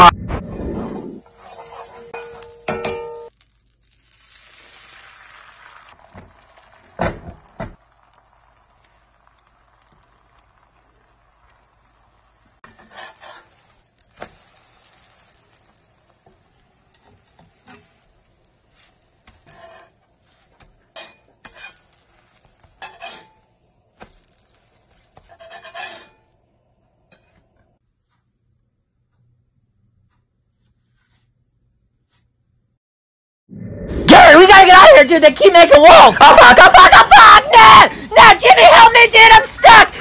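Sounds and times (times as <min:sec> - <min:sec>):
metal spatula scraping a pan: 0:00.8 - 0:03.3, 0:12.6 - 0:26.4
eggs sizzling in a skillet: 0:00.8 - 0:27.4.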